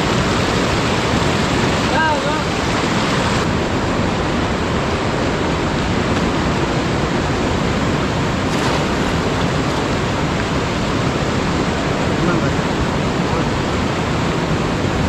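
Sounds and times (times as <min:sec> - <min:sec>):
river rushing over rocks: 0:00.0 - 0:15.0
water splash: 0:08.2 - 0:11.6.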